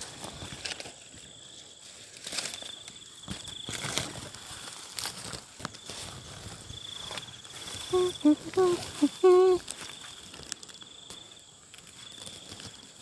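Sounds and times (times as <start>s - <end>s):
leaves rustling and crackling: 0.0s - 13.0s
insect pulsing trill: 5.8s - 12.8s
faint steady high tone: 7.8s - 9.7s.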